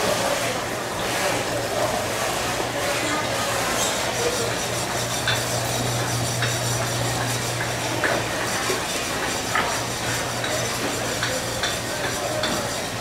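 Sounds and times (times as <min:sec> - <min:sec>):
dishes and utensils clinking: 0:03.8 - 0:06.9, 0:07.5 - 0:13.0.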